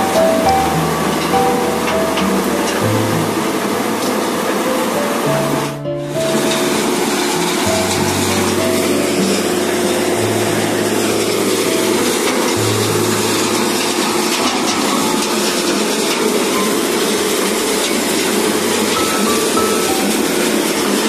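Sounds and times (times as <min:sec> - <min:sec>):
running machinery: 0:00.0 - 0:21.0
slurry water pouring: 0:05.3 - 0:21.0.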